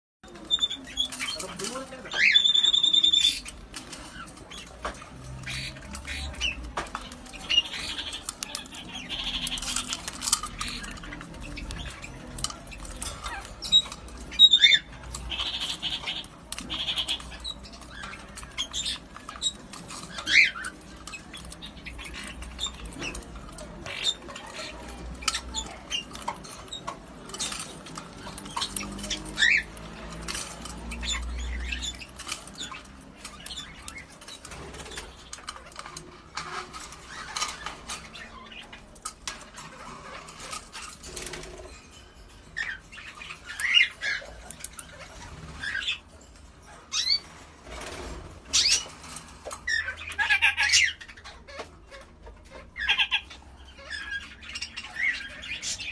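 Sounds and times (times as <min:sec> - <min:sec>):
beaks pecking a plastic dish: 0:00.2 - 0:41.8
parakeet squawking: 0:00.2 - 0:41.9, 0:42.5 - 0:55.9
parakeet chirps: 0:02.0 - 0:38.8.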